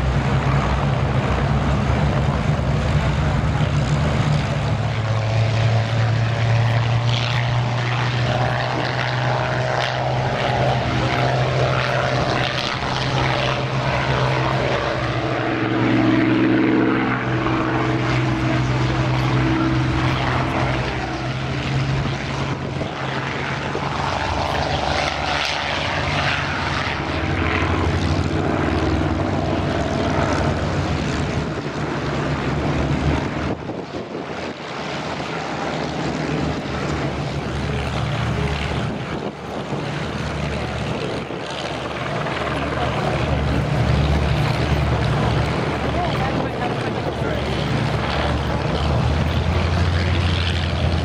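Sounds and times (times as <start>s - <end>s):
propeller planes flying past: 0.0s - 51.0s.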